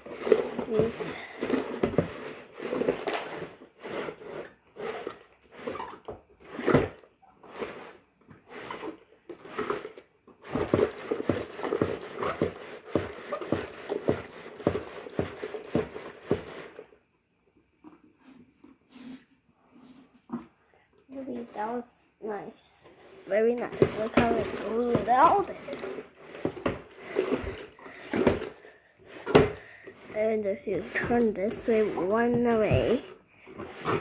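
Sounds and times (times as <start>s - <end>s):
washing machine sloshing: 23.3s - 34.0s.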